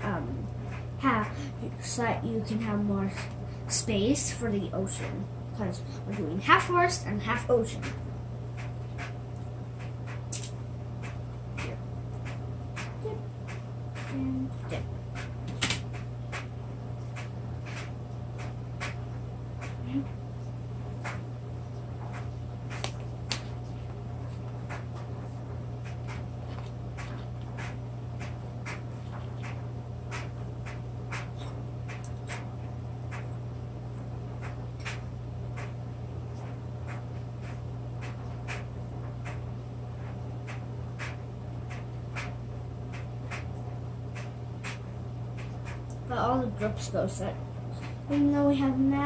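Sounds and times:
low hum: 0.0 - 49.0
crackers snapping: 8.6 - 14.1, 22.1 - 25.0.

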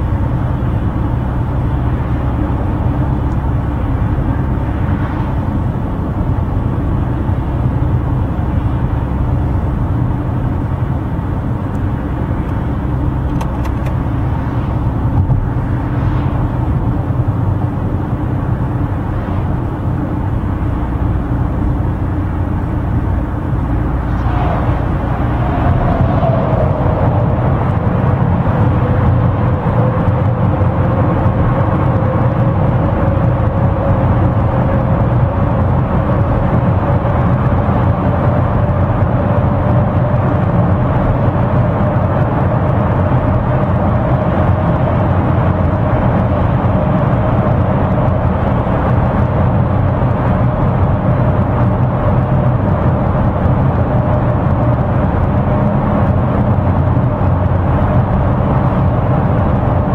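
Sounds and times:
road and engine noise in car: 0.0 - 59.9
faint rising whine: 2.2 - 7.0, 11.8 - 34.6.

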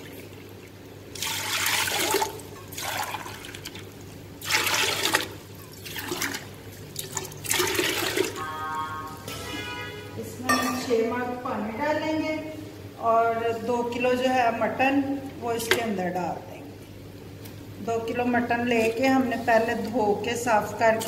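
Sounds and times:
water splashing into a pot: 0.0 - 8.4.

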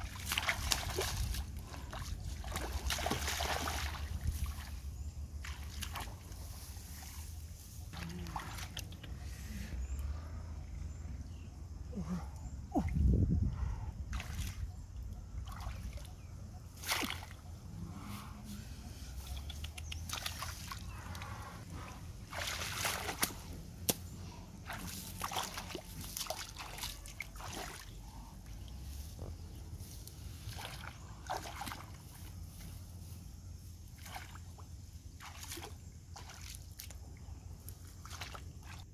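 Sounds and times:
splashing in muddy water: 0.0 - 7.2, 7.8 - 9.2, 14.1 - 17.6, 19.1 - 32.6, 33.8 - 38.9
grass rustling: 28.6 - 34.4.

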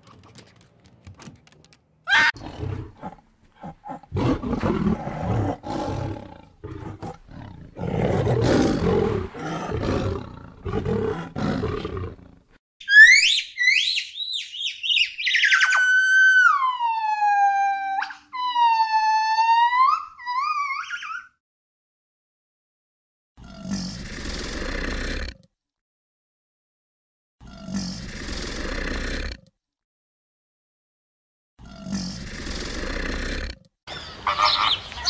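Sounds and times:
tiger growling and snarling: 2.3 - 12.6, 23.4 - 25.5, 27.4 - 29.5, 31.6 - 33.7.

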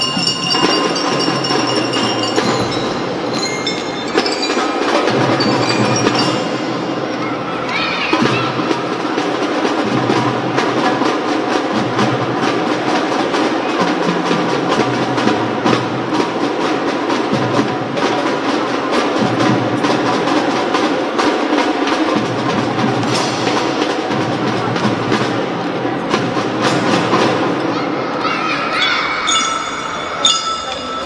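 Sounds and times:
bell lyre melody: 0.0 - 7.0, 28.8 - 31.0.

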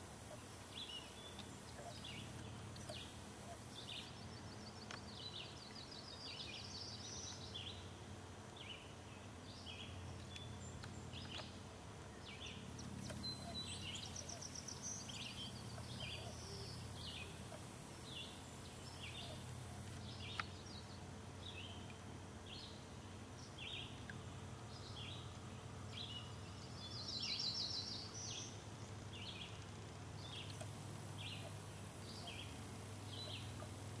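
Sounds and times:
birds chirping and trilling: 12.2 - 21.9, 25.9 - 34.0.

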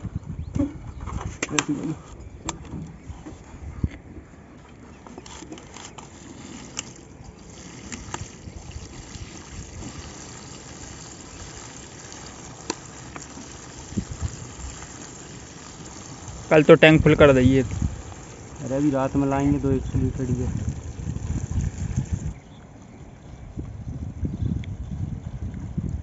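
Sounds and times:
liquid pouring into a bottle: 6.0 - 22.4.

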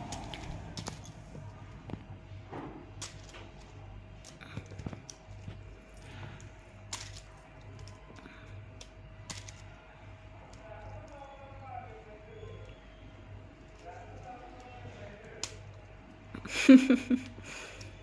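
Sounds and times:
faint steady hum: 0.0 - 18.0
plastic toy pieces clicking: 6.8 - 9.7.

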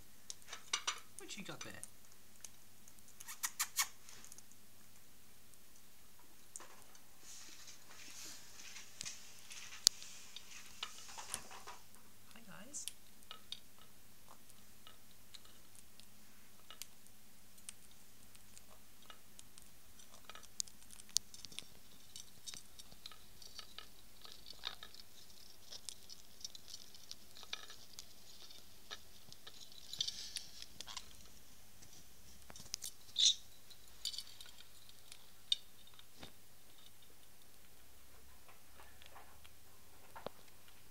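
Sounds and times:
beaks clicking and cracking seed: 0.3 - 4.5, 12.8 - 31.4.

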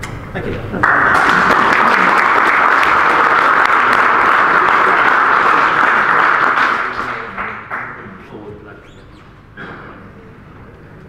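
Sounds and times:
audience applauding: 0.8 - 8.2.

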